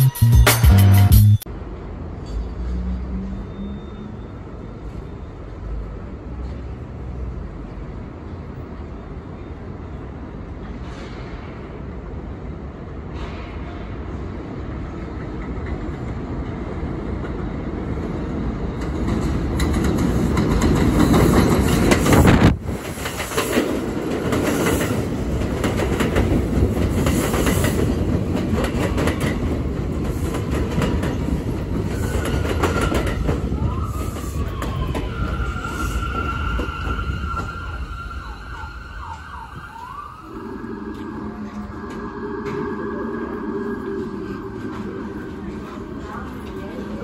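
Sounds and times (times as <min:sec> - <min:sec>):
train brakes squealing: 0:02.2 - 0:05.8, 0:31.1 - 0:40.6
train wheels rumbling and clattering: 0:10.3 - 0:40.0, 0:40.8 - 0:47.0.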